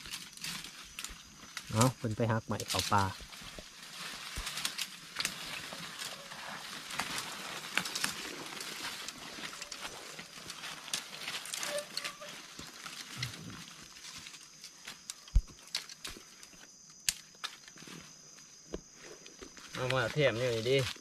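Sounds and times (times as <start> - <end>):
dry leaves and twigs crackling: 0.0 - 21.0.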